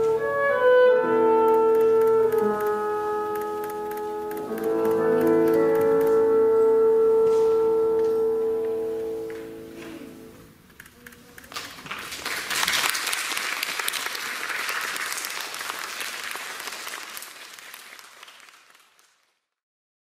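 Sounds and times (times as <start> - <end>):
audience applause: 11.5 - 19.4.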